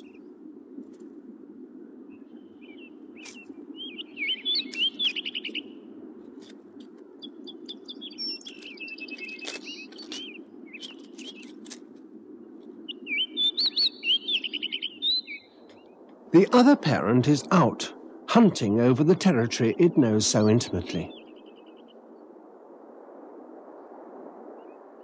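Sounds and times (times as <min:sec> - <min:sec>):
songbirds warbling chirps: 0:02.1 - 0:05.9, 0:07.2 - 0:11.8, 0:12.8 - 0:16.6, 0:19.0 - 0:22.0.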